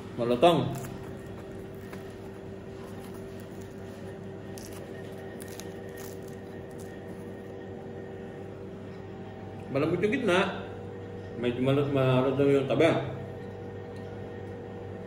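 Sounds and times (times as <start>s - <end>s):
machine hum: 0.0s - 15.0s
pizza crust crackling: 0.2s - 7.6s.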